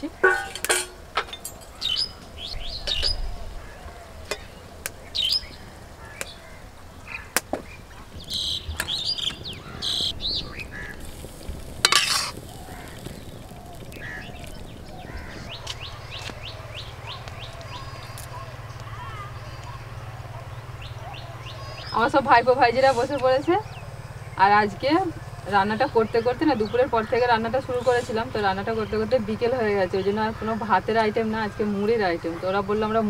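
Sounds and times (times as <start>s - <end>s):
small birds chirping: 0.0s - 33.0s
metal spoon scraping a wok: 0.2s - 1.7s, 11.9s - 12.4s
loud metal clatter: 0.2s - 1.9s.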